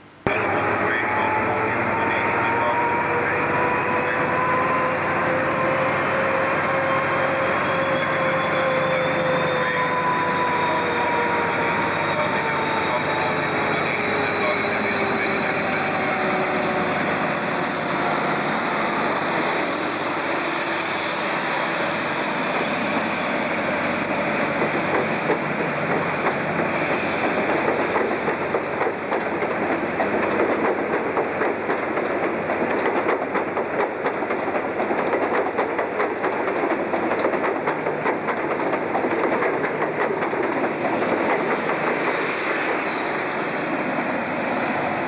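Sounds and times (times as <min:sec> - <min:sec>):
train rumble: 0:00.0 - 0:45.0
diesel engine whine: 0:00.1 - 0:25.0
train wheels clicking over rail joints: 0:24.4 - 0:42.9.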